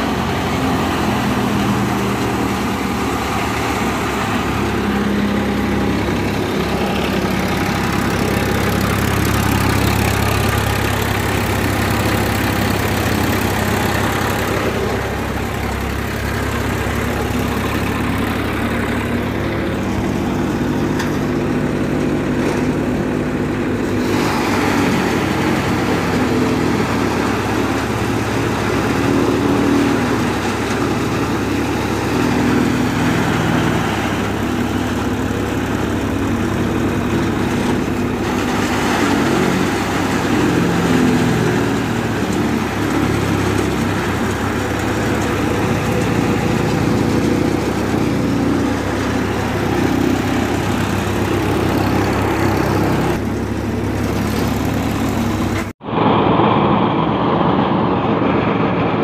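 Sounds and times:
tractor engine running: 0.0s - 59.0s
chaff cutter chopping fodder: 19.0s - 55.7s.

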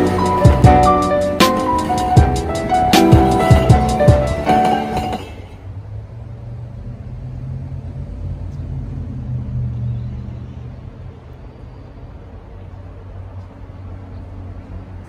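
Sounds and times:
intro music: 0.0s - 5.4s
diesel train rumble: 0.0s - 15.0s.

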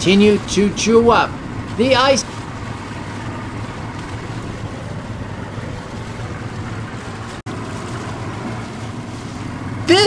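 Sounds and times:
low engine drone: 0.0s - 10.0s
wind noise on microphone: 2.4s - 7.4s.

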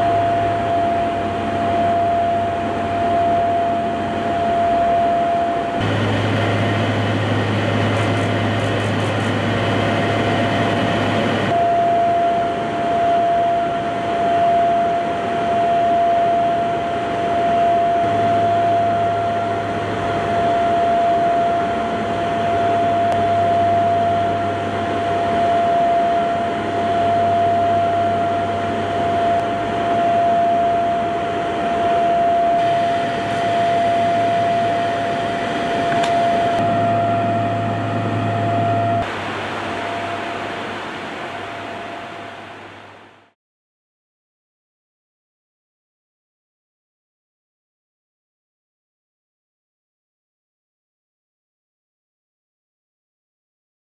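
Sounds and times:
aircraft engine drone in cabin: 0.0s - 43.4s
high-pitched tone: 29.1s - 39.1s.

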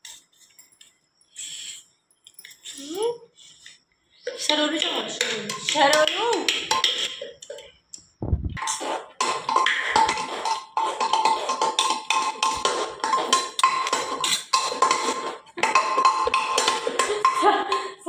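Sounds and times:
utensils clattering on plates: 8.6s - 18.0s.

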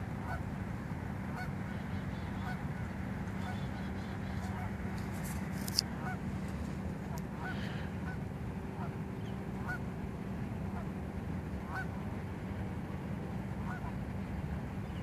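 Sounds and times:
low background noise: 0.0s - 15.0s
geese honking: 0.2s - 0.5s, 1.3s - 6.4s, 7.0s - 9.9s, 11.6s - 12.1s, 13.6s - 14.0s.

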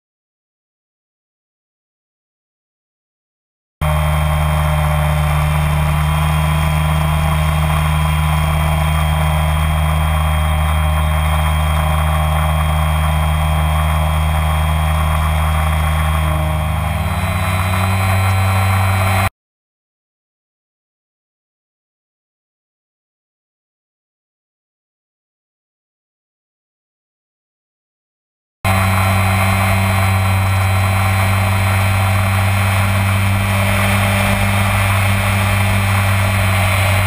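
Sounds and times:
drone motors humming: 3.8s - 19.3s, 28.7s - 37.0s.

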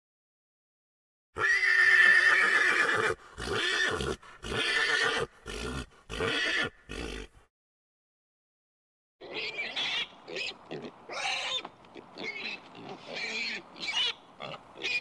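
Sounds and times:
pony whinnying: 1.4s - 7.4s, 9.2s - 15.0s.

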